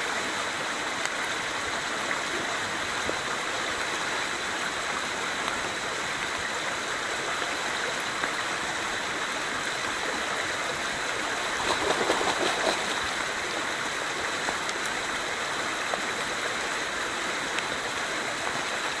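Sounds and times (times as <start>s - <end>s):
creek water rushing: 0.0s - 19.0s
fish splashing at surface: 11.3s - 13.4s.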